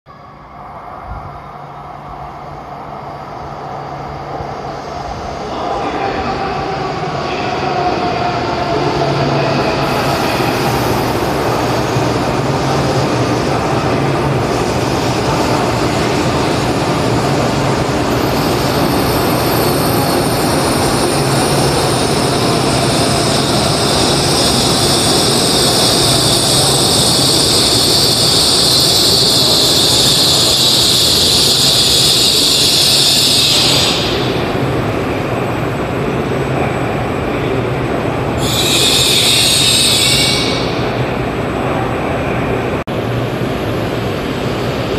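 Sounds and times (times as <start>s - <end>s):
train running noise: 0.1s - 44.9s
wheels and brakes screeching: 38.4s - 40.9s.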